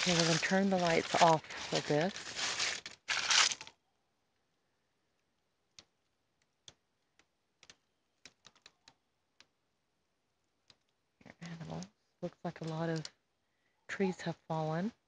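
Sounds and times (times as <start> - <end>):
loud rustle: 0.0 - 3.7
faint sharp clicks and crackles: 5.2 - 9.6, 10.6 - 11.9.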